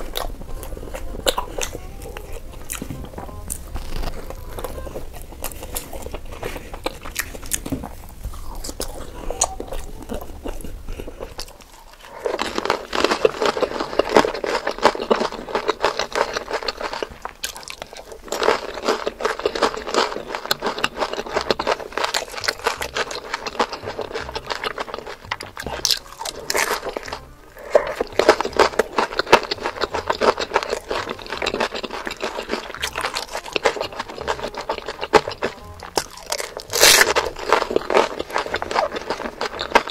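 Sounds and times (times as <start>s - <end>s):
low hum: 0.0s - 11.4s
crisp crunching of food: 0.0s - 39.9s
soft chewing: 0.0s - 39.9s.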